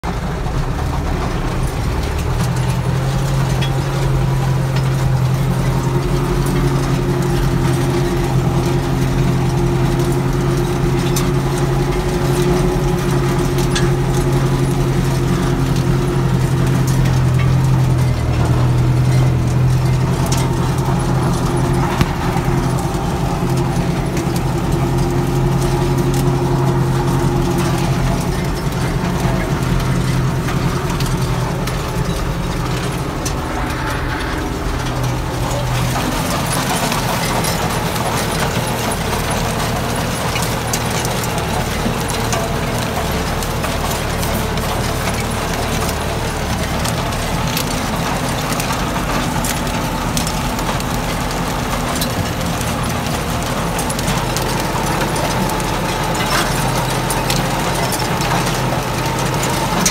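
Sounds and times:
tractor diesel engine droning: 0:00.0 - 0:59.9.

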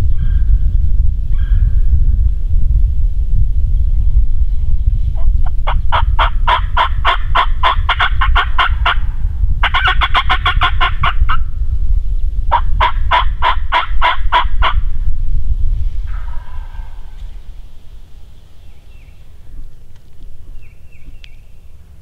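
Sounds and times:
low rumble: 0:00.0 - 0:22.0
turkey yelping: 0:05.7 - 0:09.0, 0:09.6 - 0:11.4.

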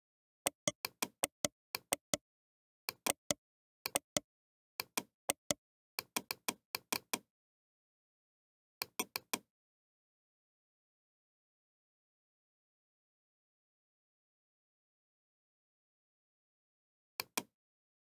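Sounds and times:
computer mouse buttons clicking: 0:00.5 - 0:02.2, 0:02.9 - 0:04.2, 0:04.8 - 0:07.2.

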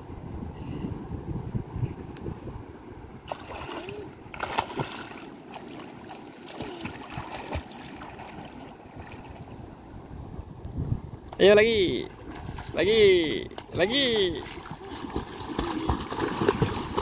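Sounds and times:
wind rumble on microphone: 0:00.0 - 0:04.4, 0:08.9 - 0:17.0
water splashing: 0:03.3 - 0:09.6, 0:11.9 - 0:17.0.

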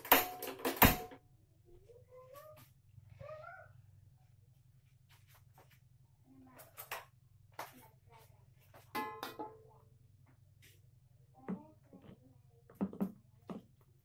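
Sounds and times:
steady low hum: 0:00.2 - 0:14.0
metallic ring: 0:08.9 - 0:09.7.

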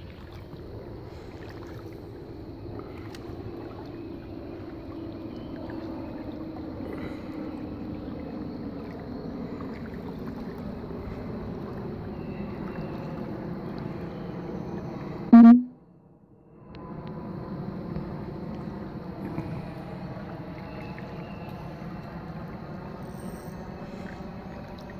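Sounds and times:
flowing river water: 0:00.0 - 0:15.0, 0:18.5 - 0:24.9
loud pitched tone: 0:15.3 - 0:15.7.

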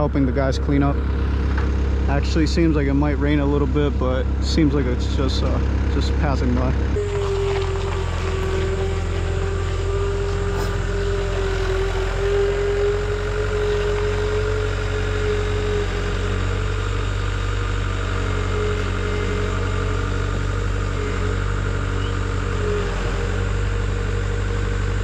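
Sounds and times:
steady whine: 0:00.0 - 0:25.0
vehicle engine humming: 0:00.0 - 0:25.0.

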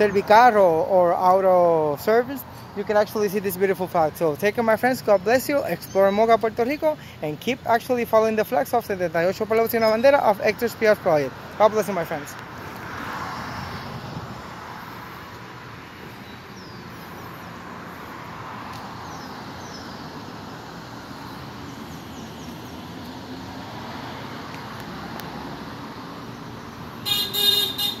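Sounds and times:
road traffic noise: 0:00.0 - 0:28.0
car horn honking: 0:27.0 - 0:28.0.

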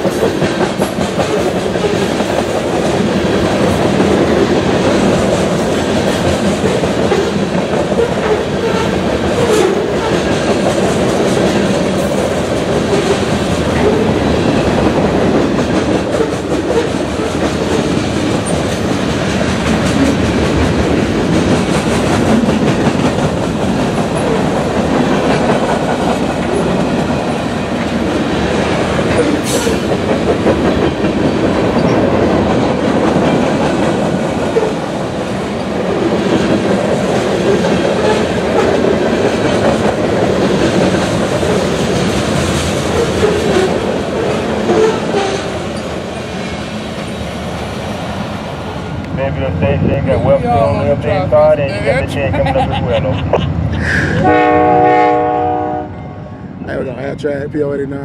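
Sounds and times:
steel wheels clacking on rail joints: 0:00.0 - 0:35.0
freight train rolling past: 0:00.0 - 0:58.0.

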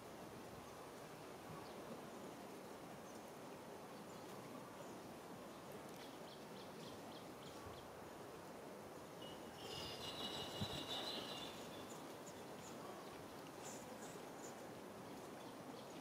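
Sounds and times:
faint low hiss: 0:00.0 - 0:16.0
thin high tone: 0:09.2 - 0:12.0
faint high chirps: 0:09.2 - 0:12.4.

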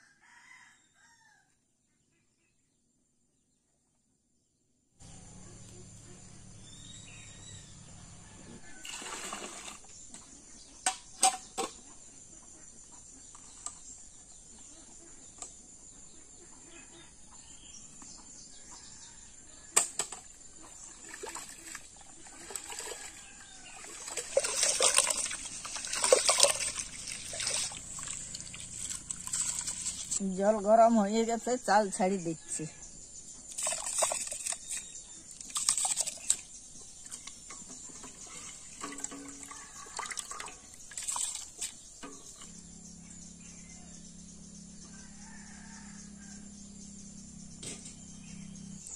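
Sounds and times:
rice washed in water sloshing: 0:08.8 - 0:09.8, 0:20.8 - 0:30.2, 0:33.5 - 0:34.8, 0:35.4 - 0:36.4, 0:37.8 - 0:42.4.

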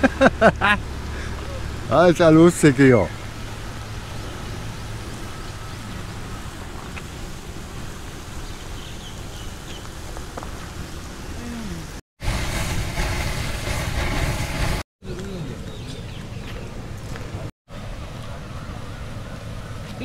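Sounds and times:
geysers spraying water: 0:00.0 - 0:14.8.

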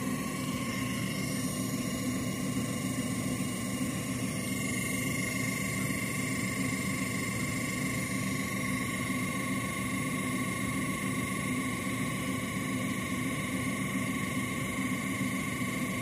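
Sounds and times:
synthesizer rough hum: 0:00.0 - 0:02.4.

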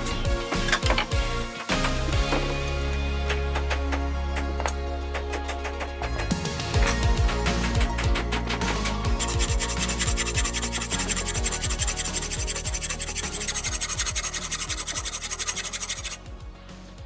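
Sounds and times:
background music with bass: 0:00.0 - 0:17.0
hand file rasping on metal: 0:06.8 - 0:16.2.

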